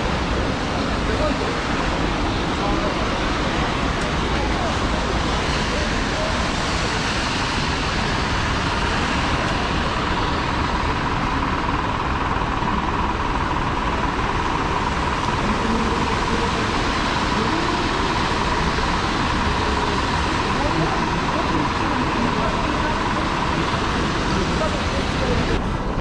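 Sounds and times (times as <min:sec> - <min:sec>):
passing traffic: 0:00.0 - 0:26.0
heavy rain hiss: 0:13.8 - 0:26.0.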